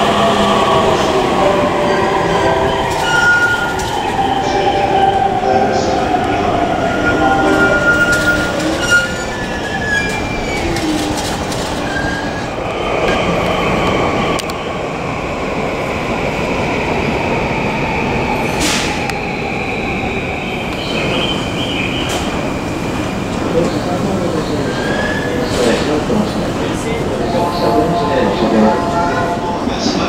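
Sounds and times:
electric train rumble: 0.0 - 30.0
wheel squeal: 7.1 - 12.5.

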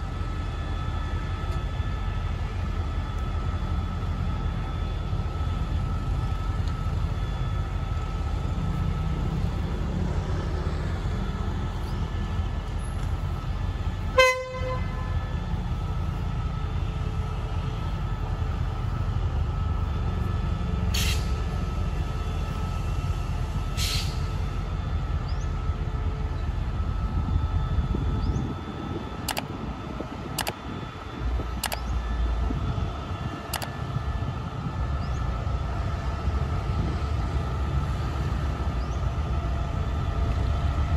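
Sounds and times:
locomotive rumbling: 0.0 - 40.9
locomotive horn toot: 14.1 - 15.3.

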